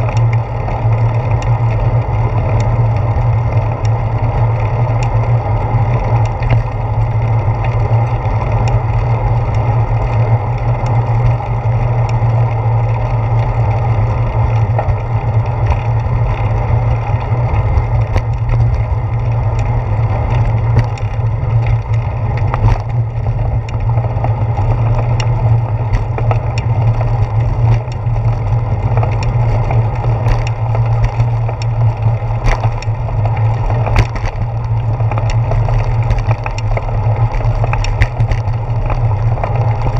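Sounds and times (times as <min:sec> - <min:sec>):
bicycle rolling over pavement: 0:00.0 - 0:39.9
small clicks and knocks: 0:00.0 - 0:39.9.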